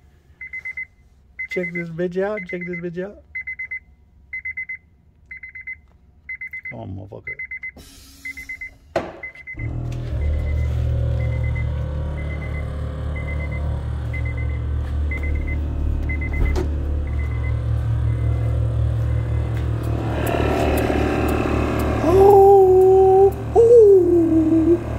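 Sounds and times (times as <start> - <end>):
high beeps: 0.5 - 3.8, 4.4 - 19.6
air compressor humming: 7.8 - 24.9.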